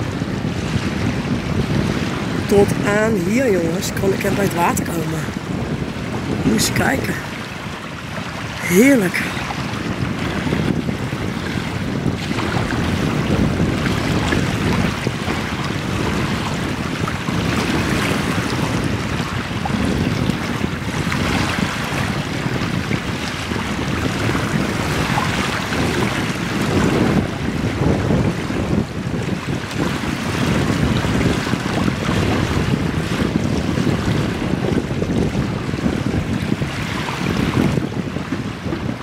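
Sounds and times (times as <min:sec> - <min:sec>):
wind buffeting microphone: 0:00.0 - 0:39.0
small waves lapping: 0:01.7 - 0:27.8.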